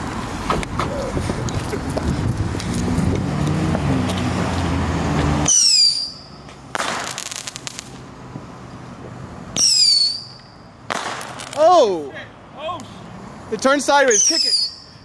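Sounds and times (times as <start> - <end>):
steady rushing noise: 0.0 - 5.5
firework whistle falling in pitch: 5.4 - 6.2
firework crackling pops: 5.4 - 8.1, 10.9 - 11.8.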